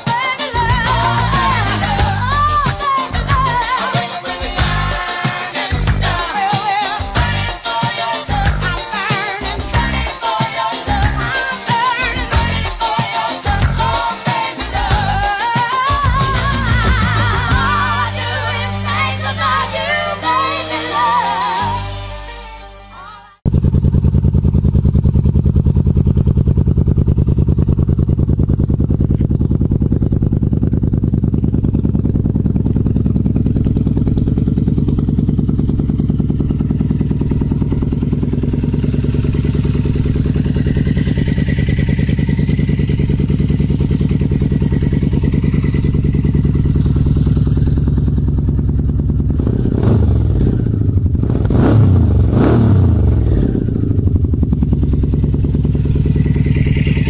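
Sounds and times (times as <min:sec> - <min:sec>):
motorcycle engine idling: 0:00.0 - 0:19.2, 0:23.4 - 0:57.0
motorcycle throttle blips: 0:23.5 - 0:57.0.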